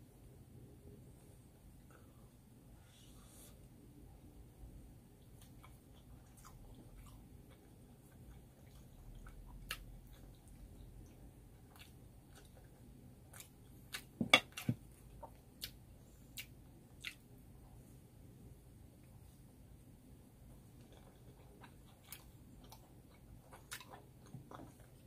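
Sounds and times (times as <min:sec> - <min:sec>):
chewing and biting: 0:05.4 - 0:17.2, 0:20.8 - 0:25.0.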